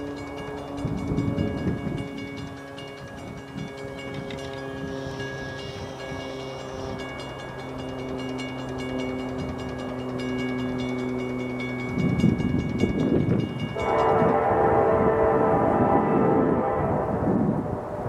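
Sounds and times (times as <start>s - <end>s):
crossing warning bell ringing: 0.0s - 17.8s
locomotive air horn: 13.7s - 18.0s.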